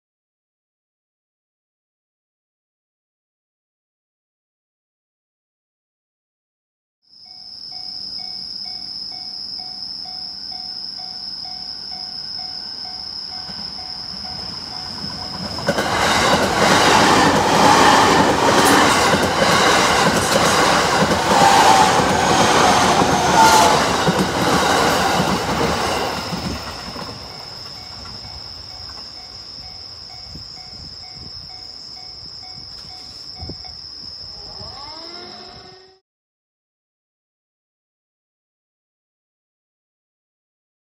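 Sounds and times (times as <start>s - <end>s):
steady high tone: 7.2s - 36.0s
level crossing alarm ringing: 7.3s - 33.8s
train wheels clattering over rail joints: 13.4s - 29.2s.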